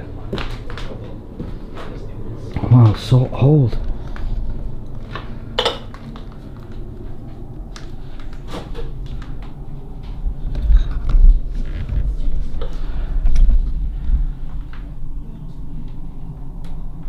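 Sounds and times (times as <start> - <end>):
handheld camera handling rumble: 3.8 - 14.8.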